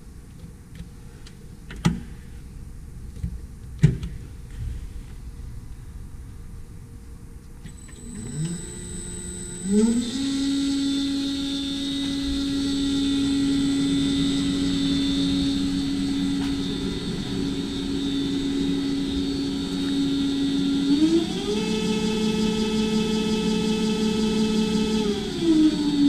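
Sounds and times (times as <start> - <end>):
motor and gearbox whine: 7.6 - 26.0.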